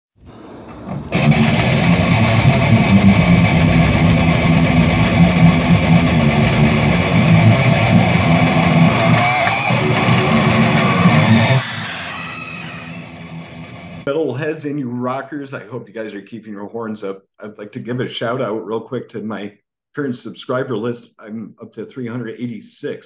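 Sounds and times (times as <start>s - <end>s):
metal electric guitar riff: 0.8s - 14.1s.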